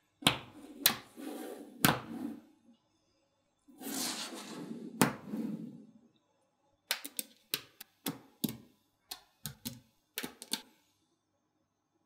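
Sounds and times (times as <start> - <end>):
balls sliding on table: 0.4 - 2.5, 3.7 - 5.9
magnetic balls clicking: 6.9 - 10.6.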